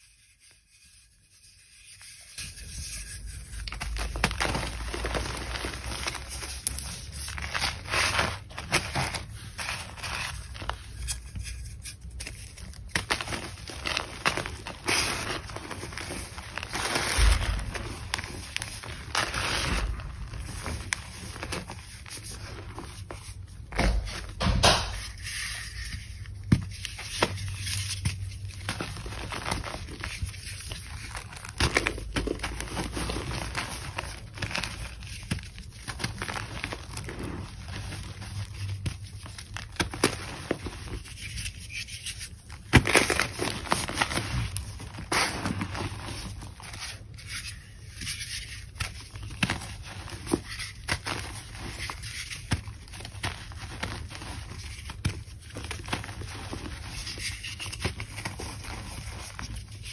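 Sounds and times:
rubbing through chalk powder: 0:00.0 - 0:23.5
hands crushing chalk blocks: 0:03.5 - 0:59.9.

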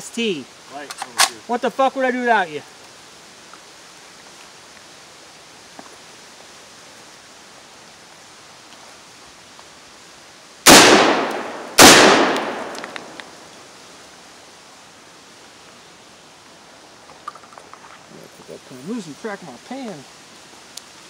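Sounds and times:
echoing rifle shots: 0:10.6 - 0:13.4.

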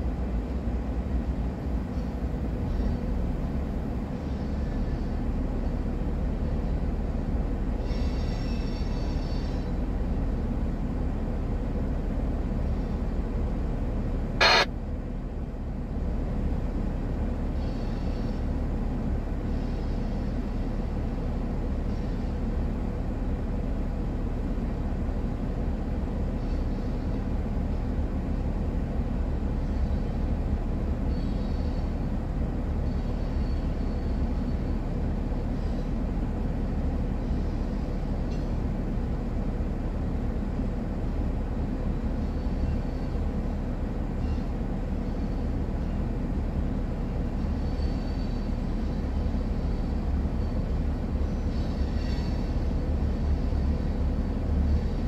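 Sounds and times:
train wheels rumbling on rail: 0:00.0 - 0:55.0
high wheel squeals: 0:01.9 - 0:05.8, 0:07.7 - 0:10.3, 0:14.4 - 0:14.7, 0:17.5 - 0:18.8, 0:19.4 - 0:22.8, 0:26.3 - 0:27.8, 0:29.5 - 0:38.8, 0:41.6 - 0:55.0.

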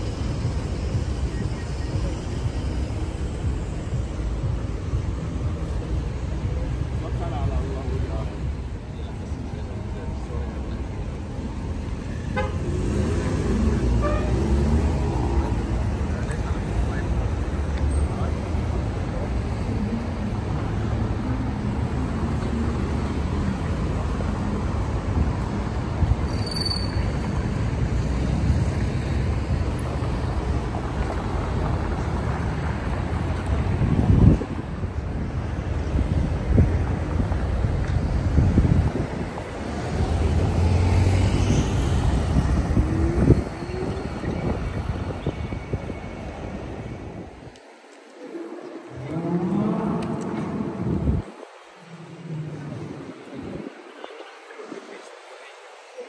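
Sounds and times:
city traffic rumble: 0:00.0 - 0:56.0
wind buffeting microphone: 0:30.6 - 0:40.6, 0:41.7 - 0:47.6, 0:48.8 - 0:54.0.

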